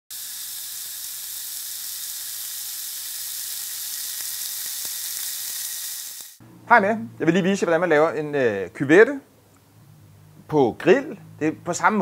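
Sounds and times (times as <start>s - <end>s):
meat sizzling on a grill: 0.1s - 6.4s.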